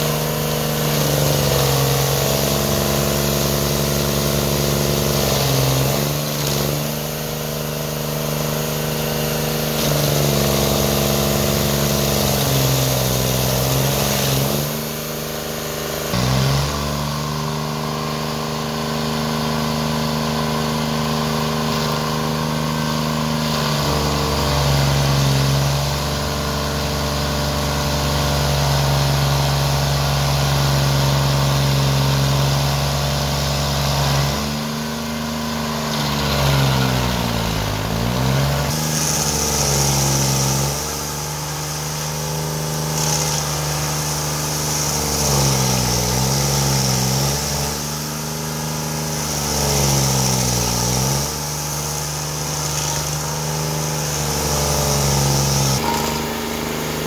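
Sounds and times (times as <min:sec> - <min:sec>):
cutter wheel grinding wood: 0:00.0 - 0:57.0
petrol engine running hard: 0:00.0 - 0:57.0.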